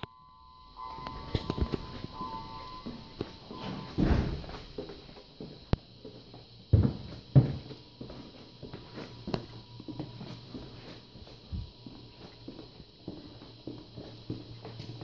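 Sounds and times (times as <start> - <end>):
footsteps on hard floor: 1.0 - 15.0
heavy thumps: 3.0 - 4.8.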